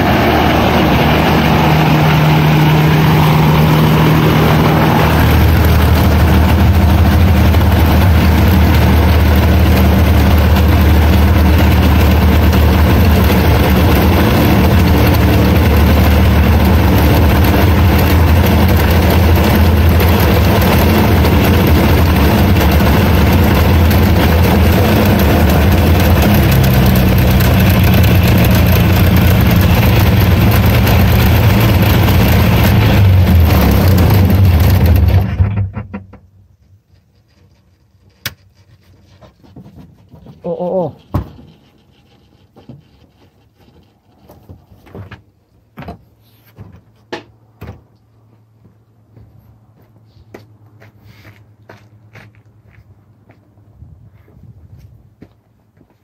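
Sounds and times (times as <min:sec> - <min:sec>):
ultralight aircraft engine running: 0:00.0 - 0:35.5.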